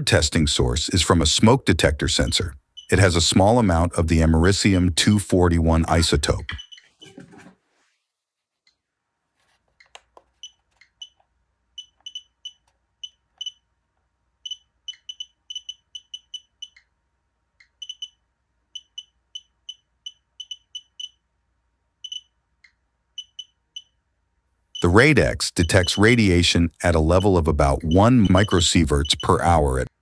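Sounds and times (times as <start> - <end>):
radiation detector short high beeps: 24.8 - 26.1.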